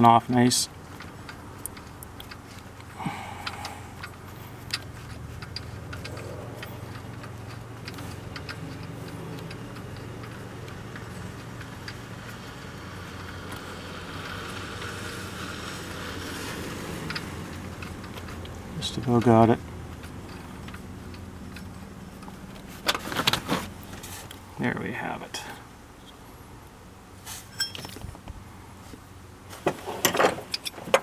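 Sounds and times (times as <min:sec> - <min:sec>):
low steady hum: 0:00.0 - 0:31.0
ratchet clicking: 0:00.7 - 0:23.0.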